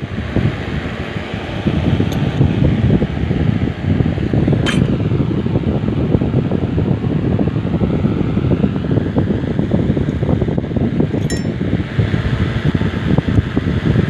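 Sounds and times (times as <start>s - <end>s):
fan rumbling: 0.0s - 14.0s
metal part clinking: 11.2s - 11.6s.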